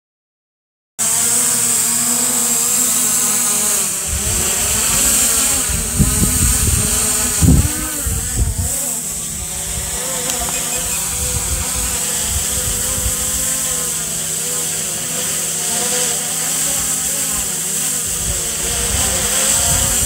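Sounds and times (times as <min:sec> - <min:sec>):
drone propellers buzzing: 0:01.0 - 0:20.0
wind gusts on microphone: 0:04.0 - 0:14.2, 0:18.0 - 0:20.0.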